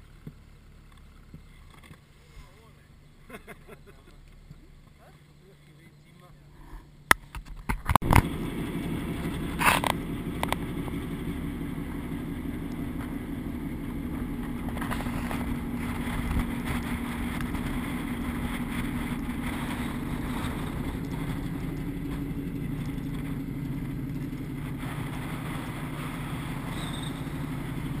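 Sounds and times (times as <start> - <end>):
wind: 0.0 - 28.0
ship engine humming: 8.0 - 28.0.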